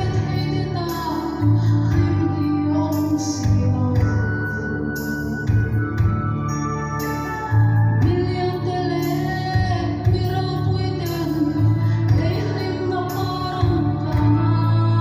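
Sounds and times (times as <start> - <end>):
woman singing into a microphone: 0.0 - 6.6, 7.3 - 15.0
instrumental accompaniment: 0.0 - 15.0
low bass: 0.0 - 15.0.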